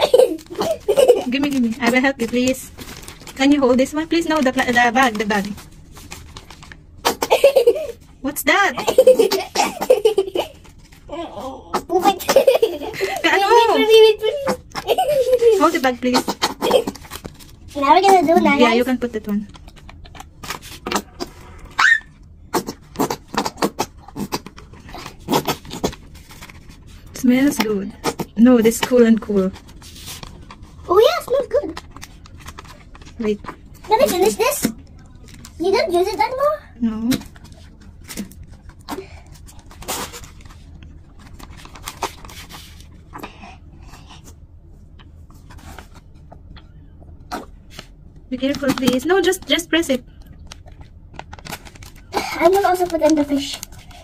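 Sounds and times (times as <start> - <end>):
plastic bag crinkling: 0.0 - 7.1, 50.3 - 54.0
gel squeezed from bottle: 20.8 - 24.5.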